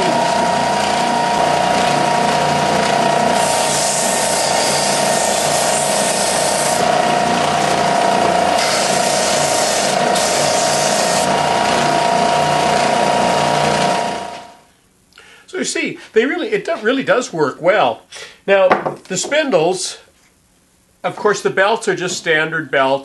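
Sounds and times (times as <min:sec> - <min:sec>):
belt sander motor whine: 0:00.0 - 0:14.6
eraser scrubbing sanding belt: 0:03.4 - 0:06.9, 0:08.6 - 0:11.3.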